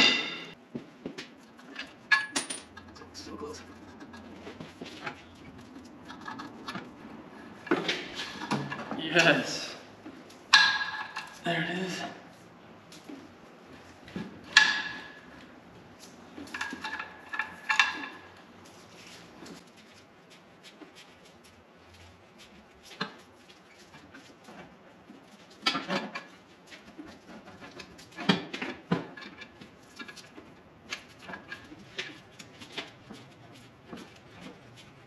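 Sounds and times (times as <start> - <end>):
metal tools clinking and clanking: 1.6 - 4.2.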